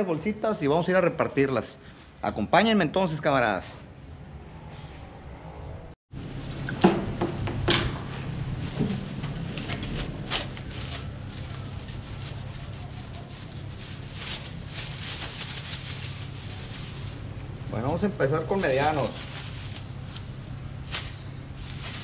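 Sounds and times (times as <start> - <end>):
low steady hum: 6.2 - 22.0
plastic bag crinkling: 8.9 - 17.4, 18.5 - 22.0.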